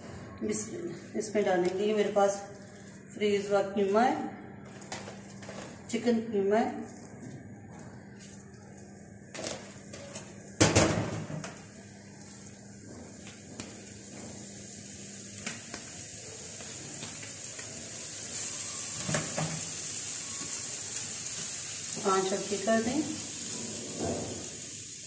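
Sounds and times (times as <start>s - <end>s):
meat sizzling on hot pan: 11.5s - 25.0s.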